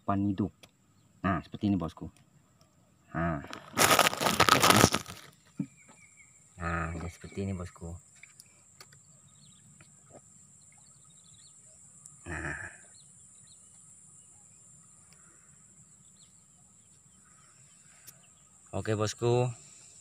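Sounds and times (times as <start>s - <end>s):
faint bird chirps: 5.2s - 20.0s.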